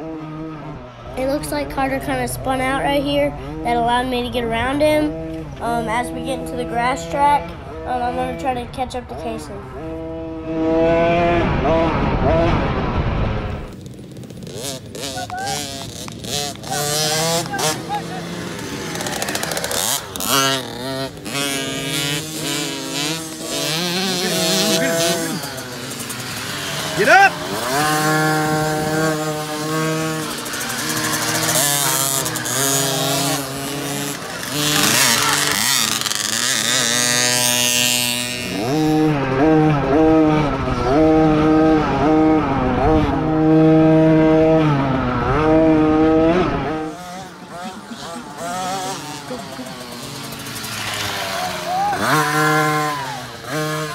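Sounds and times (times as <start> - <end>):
dirt bike engines revving: 0.0 - 53.9.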